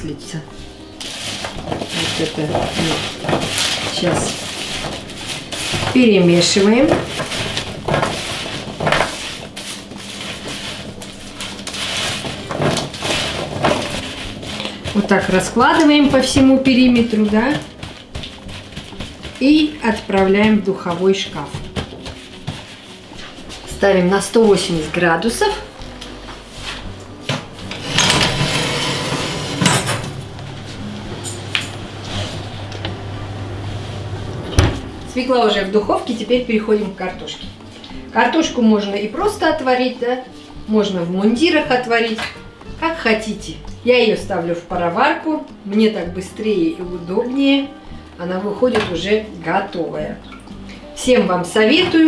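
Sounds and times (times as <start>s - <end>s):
vegetable pieces rustling on paper: 0.5s - 27.6s
baking tray scraping on runners: 0.5s - 30.9s.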